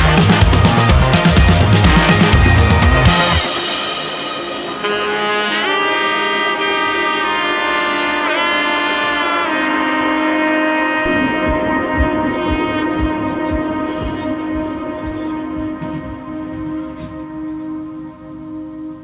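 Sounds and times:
low beat: 0.0 - 3.8, 10.9 - 19.0.

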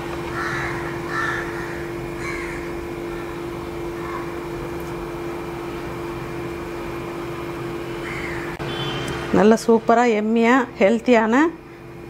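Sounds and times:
low electrical hum: 0.0 - 12.0
crows cawing: 0.3 - 4.4, 8.0 - 8.6.

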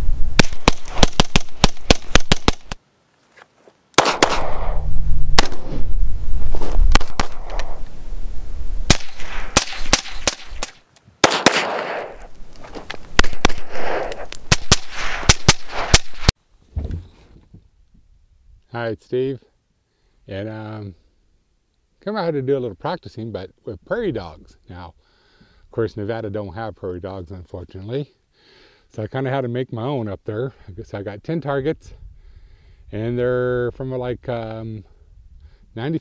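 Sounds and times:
suppressed rifle rapid fire: 0.4 - 2.8, 4.0 - 5.8, 6.9 - 7.7, 8.9 - 12.2, 13.2 - 16.3.

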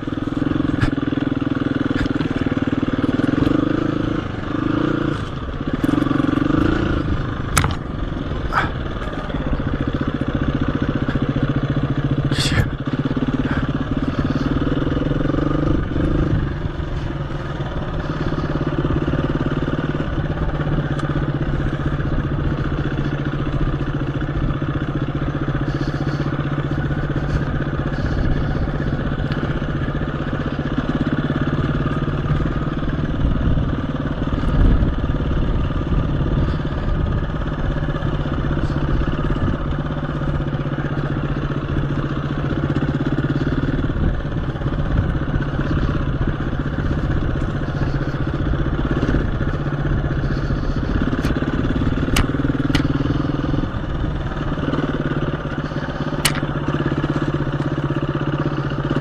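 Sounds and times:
dirt bike engine running: 0.0 - 59.0.

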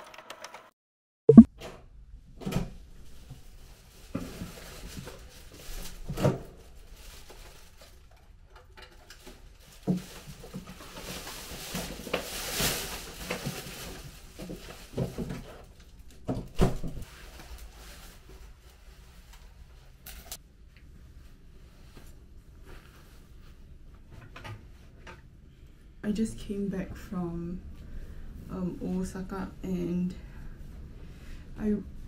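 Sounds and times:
plastic bags rustling: 3.0 - 8.2, 9.1 - 19.0.

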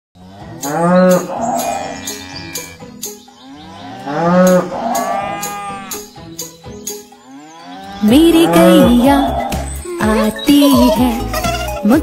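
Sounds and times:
cow mooing: 0.2 - 2.8, 3.5 - 6.1
children's song music with beat: 8.0 - 12.0.

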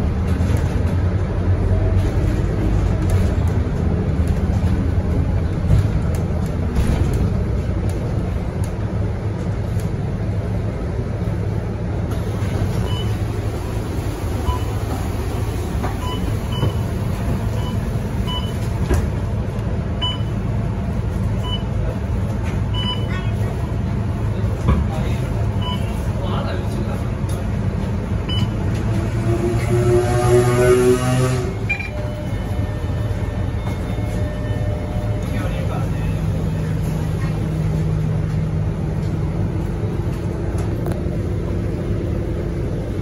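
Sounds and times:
bus diesel engine running: 0.0 - 43.0
short electronic beeps: 31.6 - 35.2.

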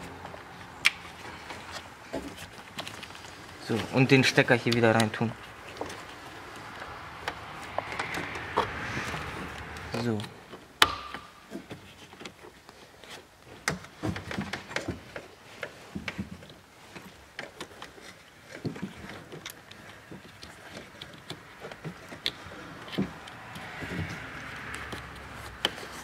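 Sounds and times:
hands handling wiring clicks: 17.3 - 26.0.

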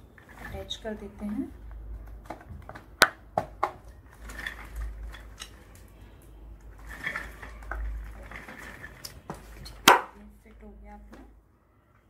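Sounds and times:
plastic parts knocking and scraping: 0.2 - 6.0, 6.6 - 10.2.

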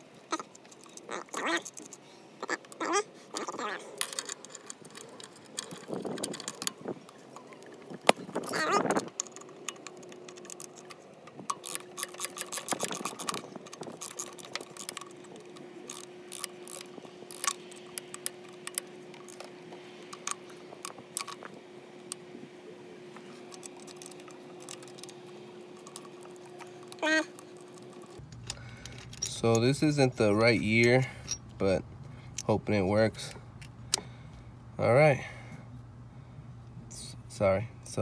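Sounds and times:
small ratchet clicking: 0.0 - 21.5, 23.5 - 29.7.

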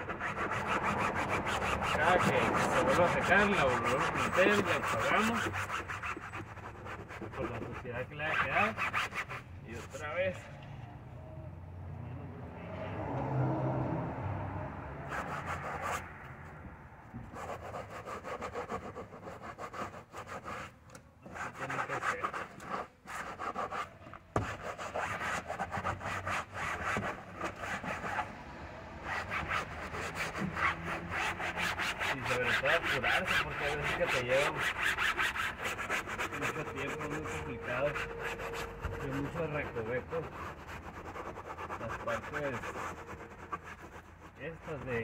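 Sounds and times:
rag scrubbing cloth: 0.0 - 10.0, 29.1 - 45.0.

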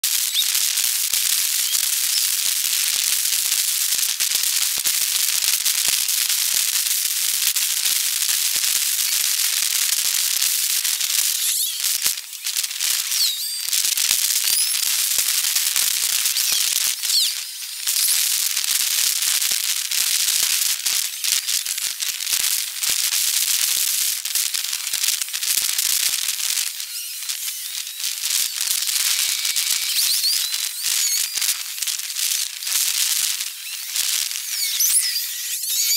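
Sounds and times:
high-pitched crackling hiss: 0.0 - 35.9
short chirps: 11.3 - 12.1, 12.9 - 15.1, 15.8 - 18.4, 26.5 - 35.9.

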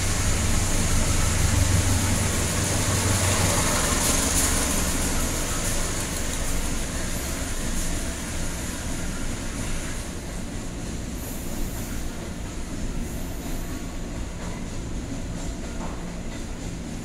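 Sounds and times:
freight train wheels rumbling on rail: 0.0 - 17.0.

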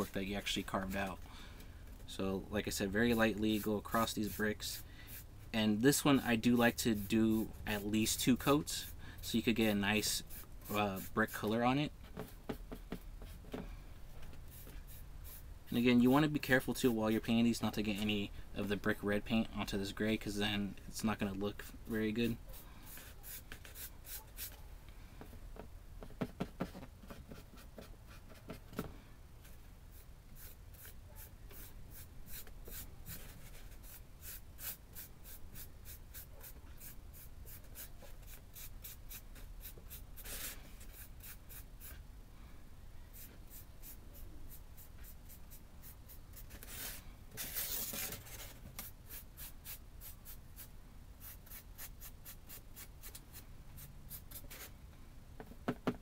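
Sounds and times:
paintbrush scratching on brick: 22.3 - 24.7, 29.9 - 42.0, 43.1 - 53.2.

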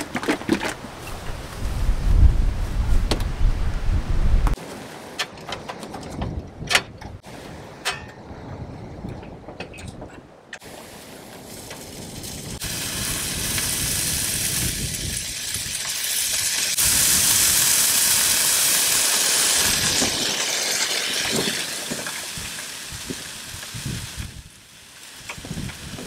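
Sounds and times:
bacon sizzling on a griddle: 11.5 - 26.0.

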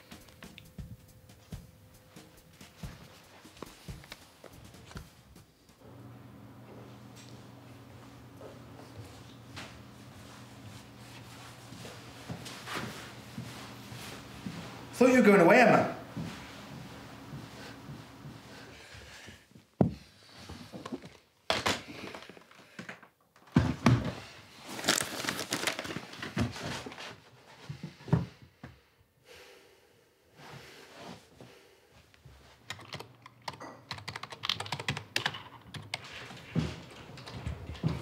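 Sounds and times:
papers rustling: 24.6 - 27.2
typing on computer keyboard: 32.7 - 36.1.

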